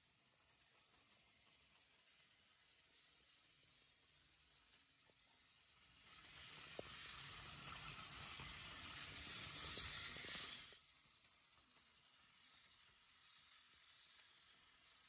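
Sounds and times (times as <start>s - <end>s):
toy engine whirring: 0.0s - 15.0s.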